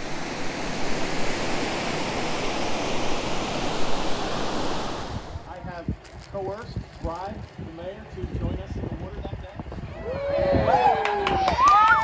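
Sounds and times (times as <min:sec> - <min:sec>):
ocean surf washing in: 0:00.0 - 0:06.5.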